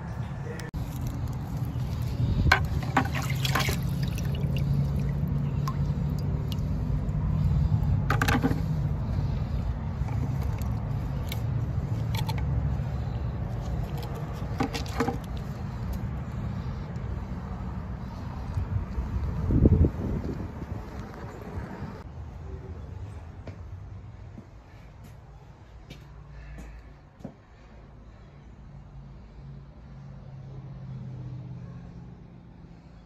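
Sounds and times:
short splashes or knocks: 0:02.5 - 0:05.9
water running into a bucket: 0:02.8 - 0:06.7.

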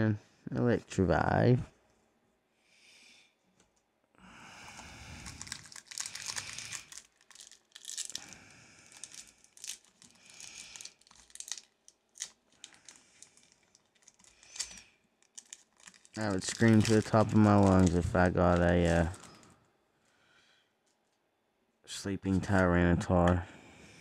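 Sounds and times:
foil wrapper crinkling and tearing: 0:05.1 - 0:19.5.

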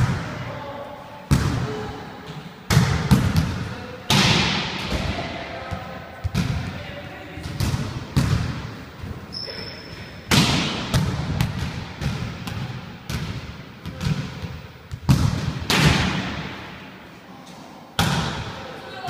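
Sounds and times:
volleyballs slapping and thudding: 0:01.3 - 0:06.8, 0:07.4 - 0:09.2, 0:10.2 - 0:16.9, 0:18.0 - 0:18.6.

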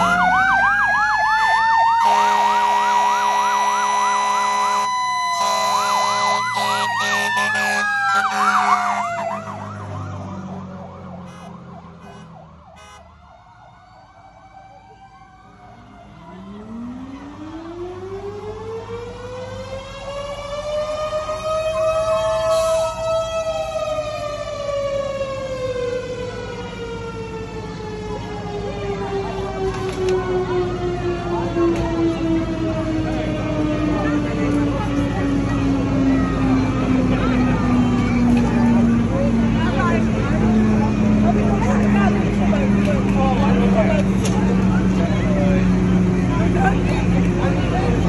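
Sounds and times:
fire engine sirens: 0:00.0 - 0:48.0
fire truck horn blasts: 0:02.0 - 0:09.3, 0:11.2 - 0:13.2, 0:22.4 - 0:23.0.

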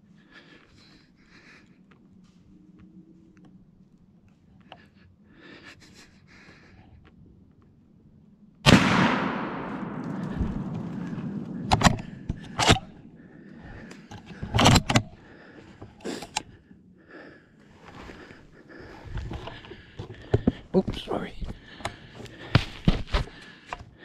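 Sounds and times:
gunshot echoing: 0:08.6 - 0:13.0
gun handling clacks: 0:09.4 - 0:13.0, 0:13.7 - 0:15.1.

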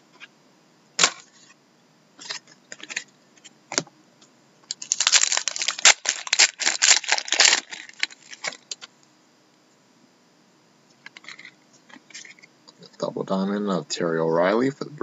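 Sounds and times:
foil wrapper tearing and crinkling: 0:04.7 - 0:08.8.

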